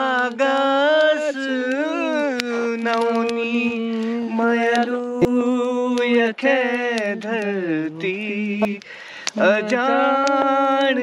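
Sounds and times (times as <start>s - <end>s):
man singing unaccompanied: 0.0s - 11.0s
sharp clicks: 0.0s - 11.0s.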